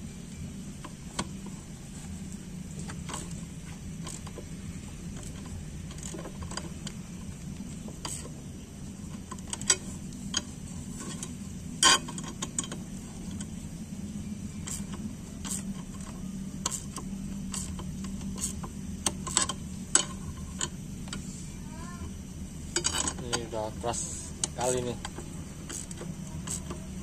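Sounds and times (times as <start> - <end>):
steady low hum: 0.0 - 27.0
wrench clicking on bolts: 2.8 - 3.4, 4.0 - 4.5, 5.2 - 7.0, 8.0 - 8.3, 9.2 - 13.5, 14.6 - 21.2, 24.4 - 26.8.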